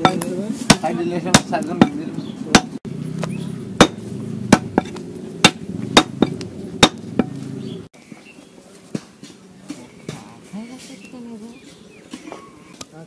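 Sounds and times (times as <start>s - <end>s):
cleaver chopping meat on wood: 0.0s - 7.4s.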